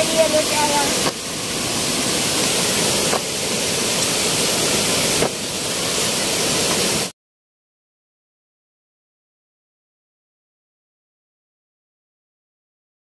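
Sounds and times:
waterfall splashing into pool: 0:00.0 - 0:07.1.

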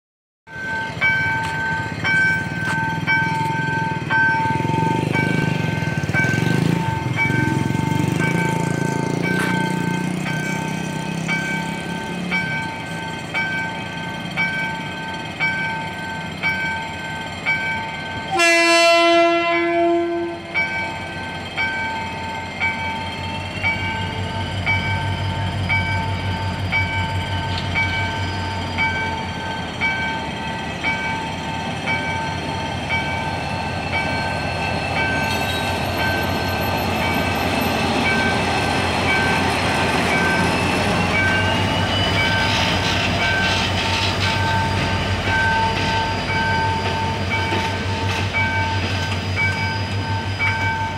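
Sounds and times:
level-crossing bell dinging: 0:00.5 - 0:18.8, 0:20.0 - 0:50.9
locomotive horn blast: 0:18.3 - 0:20.6.

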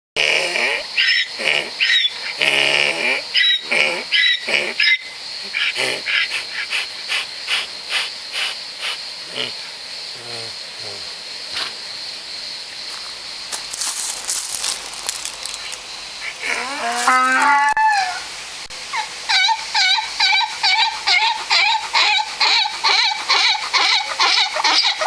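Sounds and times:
donkey braying: 0:16.2 - 0:18.3, 0:18.9 - 0:25.0.

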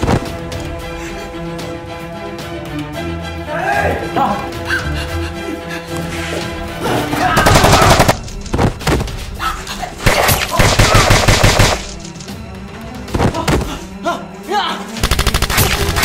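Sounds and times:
background music: 0:00.0 - 0:16.0
rapid automatic gunfire: 0:07.4 - 0:08.2, 0:10.1 - 0:11.9, 0:15.0 - 0:16.0.

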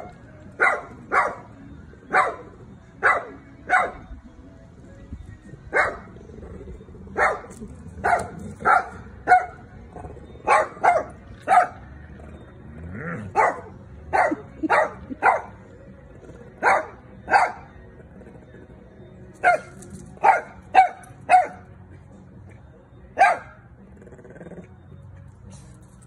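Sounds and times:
small dog barking: 0:00.6 - 0:01.4, 0:02.1 - 0:02.4, 0:03.0 - 0:04.0, 0:07.2 - 0:09.6, 0:10.5 - 0:11.8, 0:13.3 - 0:15.5, 0:19.4 - 0:21.6, 0:23.2 - 0:23.6.

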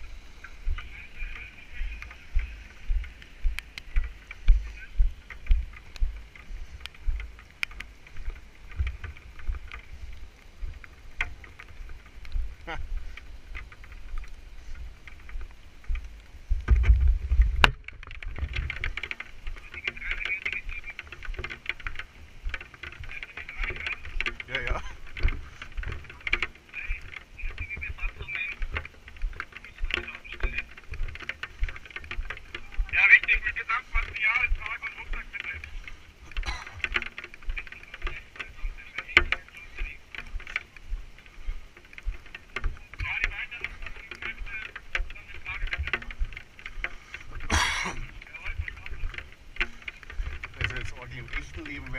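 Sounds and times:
microphone handling noise: 0:00.0 - 0:51.9
rain: 0:00.0 - 0:51.9
small ticks: 0:00.0 - 0:51.9.

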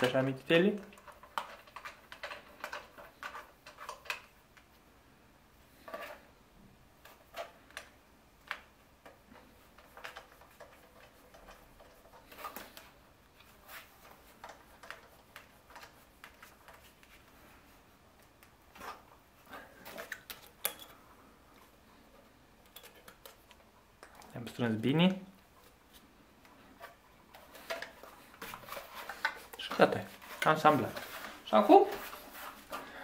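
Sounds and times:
clicks and knocks of parts handled: 0:00.0 - 0:04.8, 0:19.7 - 0:21.7, 0:22.6 - 0:32.9.

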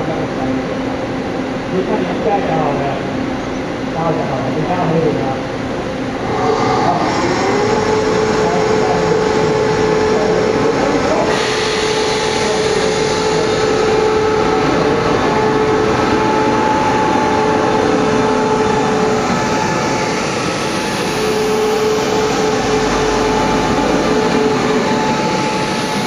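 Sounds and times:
train running noise: 0:00.0 - 0:26.0
train whine: 0:00.0 - 0:26.0
hiss: 0:11.3 - 0:13.5.

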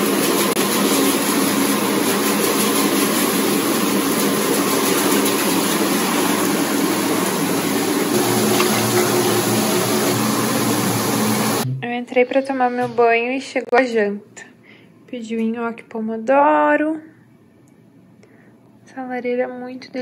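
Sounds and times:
water churning: 0:00.0 - 0:11.6
bathtub jet pump humming: 0:00.0 - 0:11.8.

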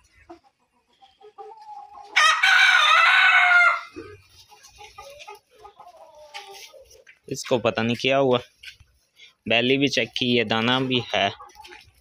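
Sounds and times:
hens clucking: 0:00.0 - 0:12.0
rooster crowing: 0:02.2 - 0:04.0.

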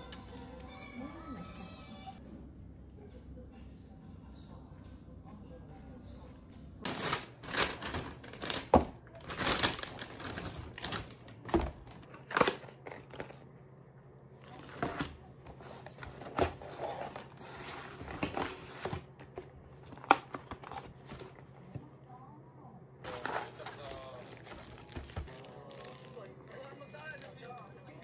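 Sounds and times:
plastic bag crinkling: 0:06.9 - 0:13.4, 0:23.0 - 0:26.4.

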